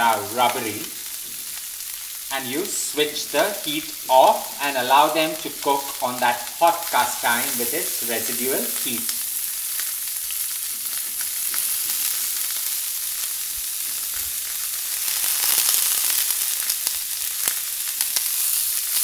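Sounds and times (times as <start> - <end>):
shrimps sizzling in oil: 0.0 - 19.0.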